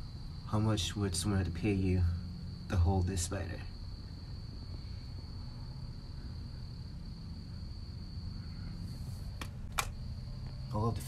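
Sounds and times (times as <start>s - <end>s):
insect trilling: 0.0s - 11.0s
sharp clicks: 9.4s - 10.0s.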